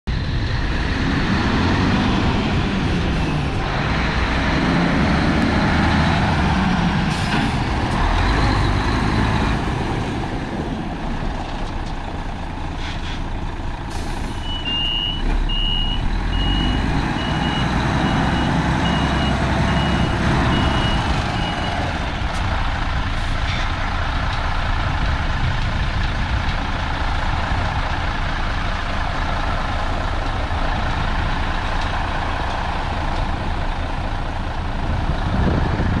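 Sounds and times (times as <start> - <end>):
diesel truck engine running: 0.1 - 36.0
reversing alarm beeping: 14.3 - 21.9.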